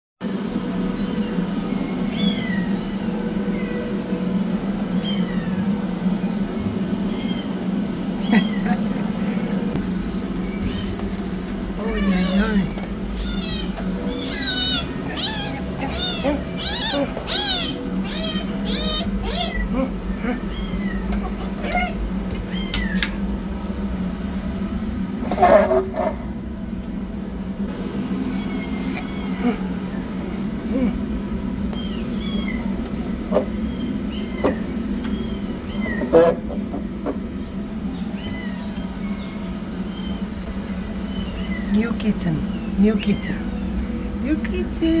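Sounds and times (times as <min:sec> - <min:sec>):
steady low hum: 0:00.2 - 0:45.0
kittens meowing: 0:00.9 - 0:04.0, 0:05.0 - 0:08.9, 0:09.8 - 0:23.2, 0:28.3 - 0:31.0, 0:31.7 - 0:36.6, 0:37.8 - 0:44.1.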